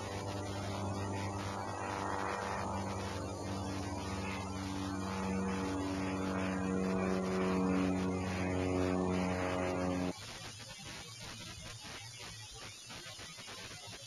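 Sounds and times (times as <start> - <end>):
motor engine running: 0.0 - 10.2.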